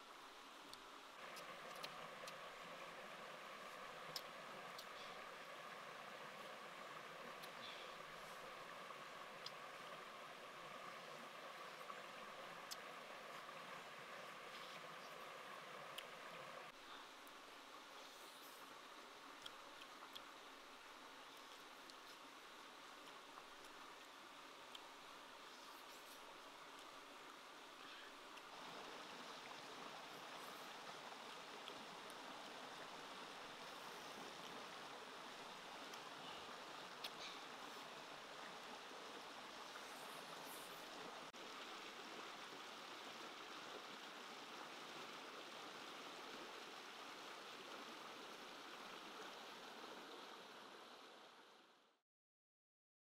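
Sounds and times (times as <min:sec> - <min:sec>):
stream running over rapids: 0:00.0 - 0:51.8.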